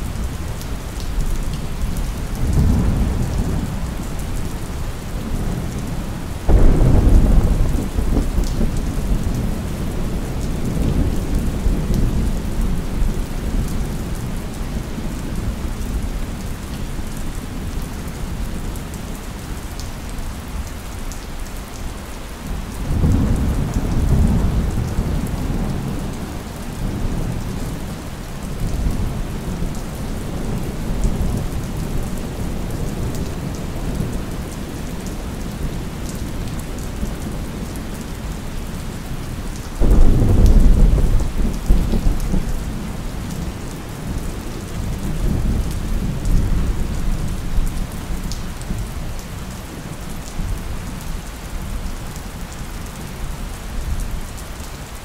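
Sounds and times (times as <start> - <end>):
steady rain: 0.0 - 55.0
loud thunderclap: 2.4 - 3.8, 6.5 - 9.5, 39.8 - 42.4
thunder rumbling: 6.4 - 13.7, 39.8 - 43.4.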